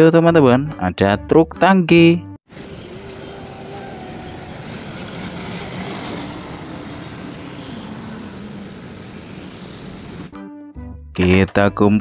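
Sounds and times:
vehicle engine rushing hum: 2.5s - 10.4s.

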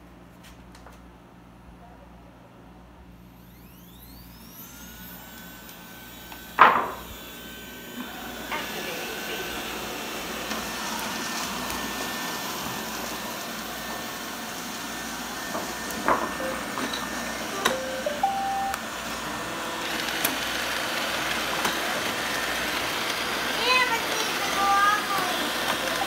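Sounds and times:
robot vacuums whirring: 3.3s - 26.0s
button clicks: 17.6s - 18.8s.

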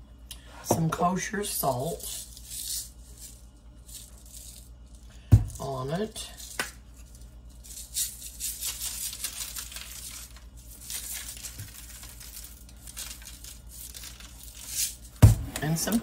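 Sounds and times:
seasoning shaken onto baking sheet: 6.4s - 15.2s.

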